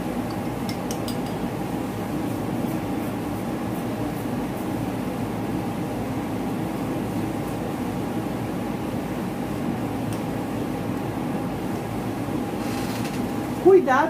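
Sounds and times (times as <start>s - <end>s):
steady machine hum: 0.0s - 14.0s.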